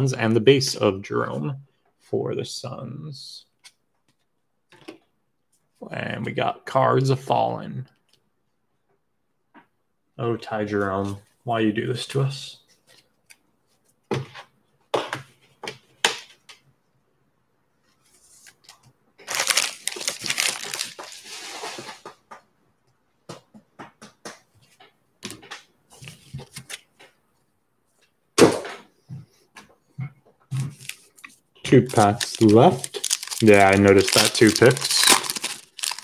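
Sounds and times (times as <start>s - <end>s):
foil wrapper crinkling and tearing: 19.2s - 21.3s, 31.7s - 36.0s
cards being handled: 25.2s - 27.2s, 30.6s - 36.0s.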